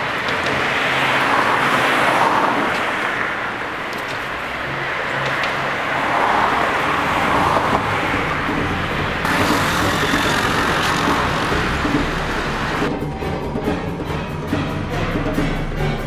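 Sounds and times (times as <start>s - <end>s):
cars passing: 0.0s - 16.0s.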